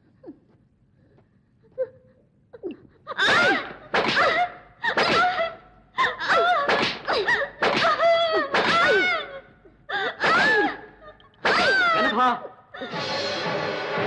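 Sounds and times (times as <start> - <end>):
stick beating: 6.7 - 8.9.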